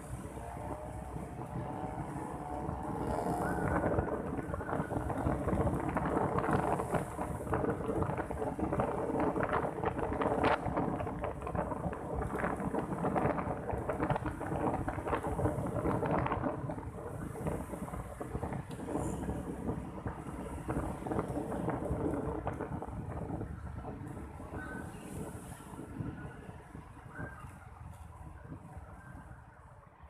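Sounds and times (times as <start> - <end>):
wind buffeting microphone: 0.0 - 29.9
faint engine hum: 0.0 - 30.0
crackling knocks and rattles: 2.6 - 24.2.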